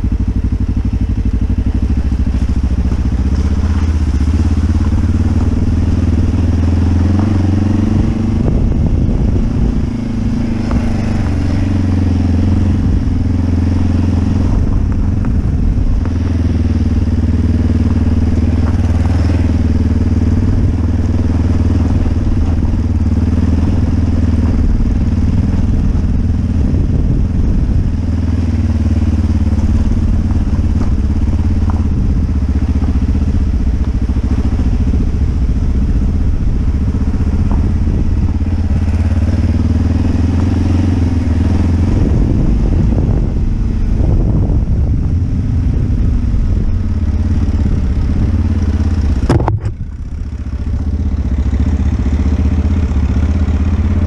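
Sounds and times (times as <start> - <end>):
motorcycle engine running: 0.0 - 54.0
tyres crunching on gravel: 1.6 - 43.3.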